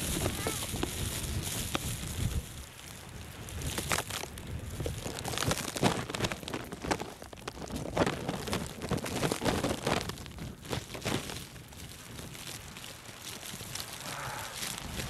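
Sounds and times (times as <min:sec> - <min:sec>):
wind buffeting microphone: 0:00.0 - 0:15.0
footsteps crunching in snow: 0:04.9 - 0:15.0.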